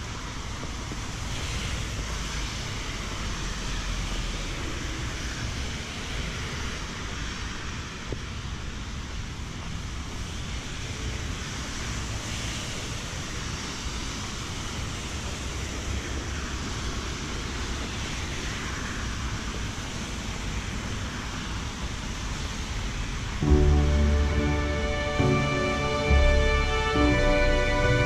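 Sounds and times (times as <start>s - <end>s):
rain: 0.0s - 28.0s
tyres hissing on wet road: 0.0s - 28.0s.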